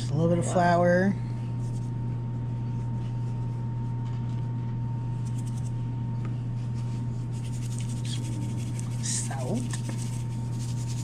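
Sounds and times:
low hum: 0:00.0 - 0:11.0
hands rubbing flour on fish: 0:06.6 - 0:11.0.

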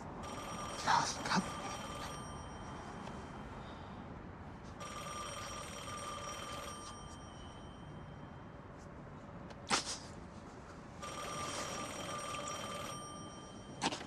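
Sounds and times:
high-pitched ringing tone: 0:00.2 - 0:03.9, 0:04.8 - 0:08.7, 0:11.0 - 0:13.8.

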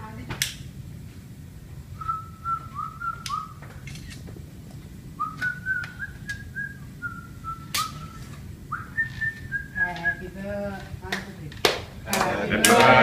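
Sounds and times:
person whistling a tune: 0:02.0 - 0:03.6, 0:05.2 - 0:10.2.

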